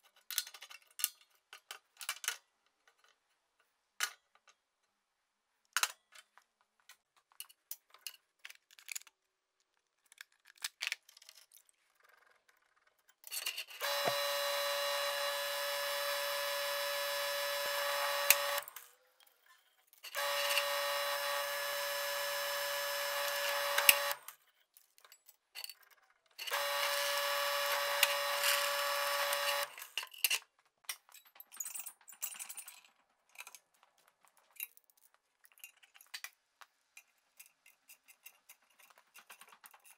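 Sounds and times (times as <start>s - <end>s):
metal parts clicking: 7.3s - 9.3s
drill press motor whine: 13.8s - 18.9s, 20.1s - 24.3s, 26.5s - 29.9s.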